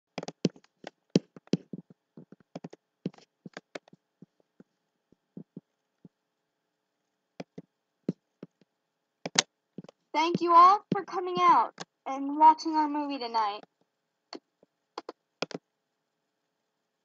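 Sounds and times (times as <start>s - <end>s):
sharp clicks and taps: 0.2s - 4.4s, 5.4s - 6.2s, 7.4s - 11.9s, 13.6s - 15.6s
faint steady hum: 0.2s - 17.0s.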